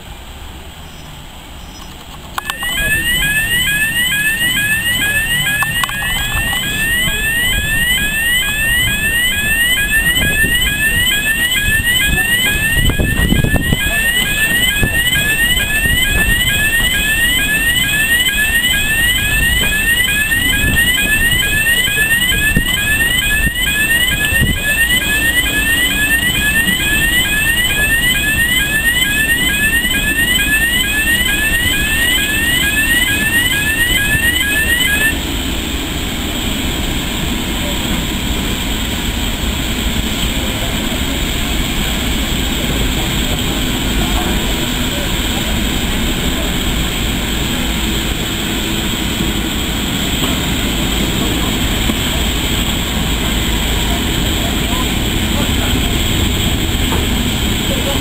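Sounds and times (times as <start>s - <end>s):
electronic alarm rising sweep tone: 2.4s - 35.2s.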